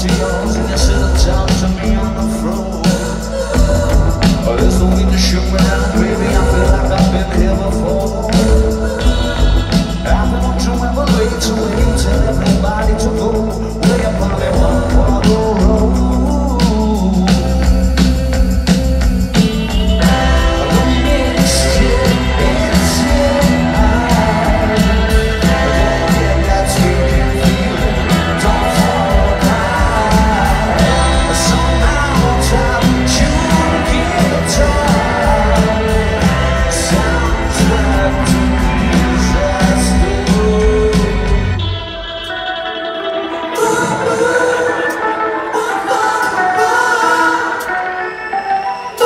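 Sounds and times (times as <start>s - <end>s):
live rock band playing: 0.0s - 49.0s
sung vocals: 0.0s - 49.0s.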